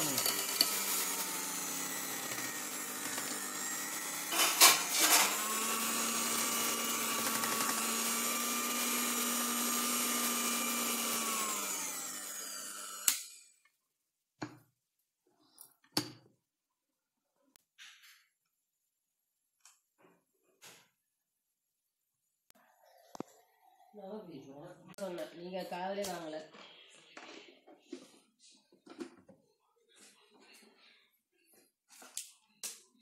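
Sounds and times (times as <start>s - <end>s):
electric hand mixer running: 0.0s - 13.6s.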